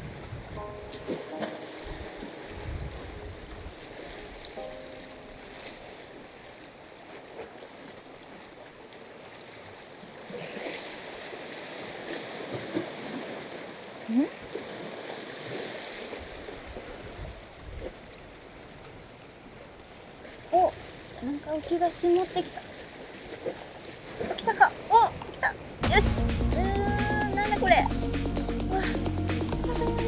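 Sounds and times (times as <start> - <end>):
water lapping against breakwater: 0.0 - 26.7.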